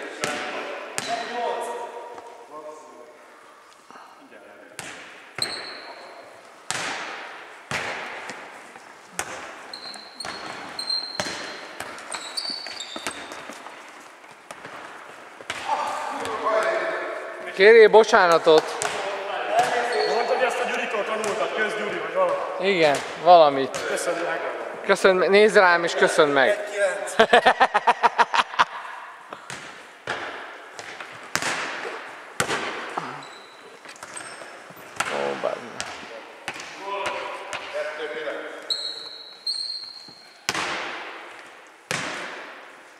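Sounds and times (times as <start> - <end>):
shoes squeaking on floor: 5.4 - 6.6, 7.5 - 16.4, 19.6 - 21.4, 32.9 - 36.6, 38.5 - 40.6
ball kicked and bouncing on wood floor: 6.7 - 16.4, 29.3 - 33.0.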